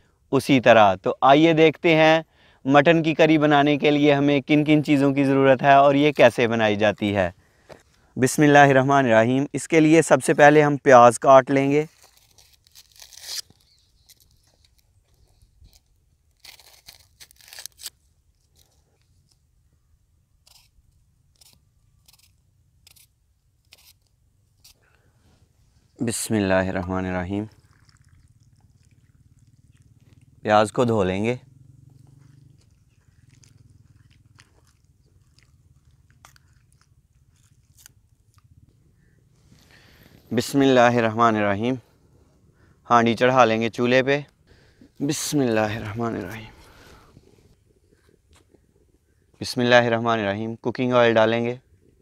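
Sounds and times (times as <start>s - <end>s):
knife peeling onion skin: 11.8s - 19.4s, 20.4s - 24.8s, 32.7s - 38.6s.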